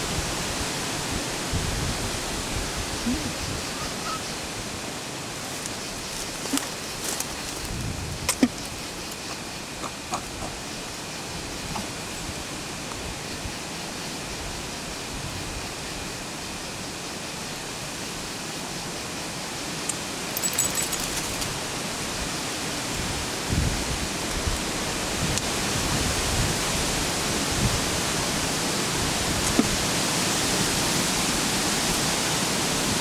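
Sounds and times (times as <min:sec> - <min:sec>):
rushing storm noise: 0:00.0 - 0:33.0
high rattle: 0:20.3 - 0:21.6.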